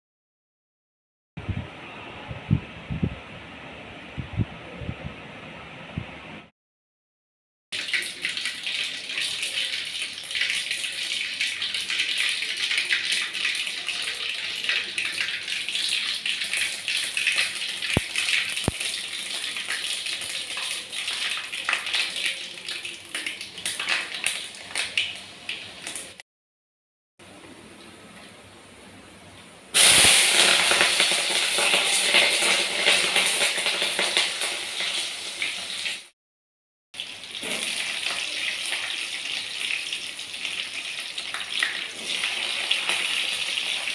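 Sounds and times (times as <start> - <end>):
oil sizzling and crackling: 7.8 - 26.2, 29.7 - 36.2, 37.0 - 43.9.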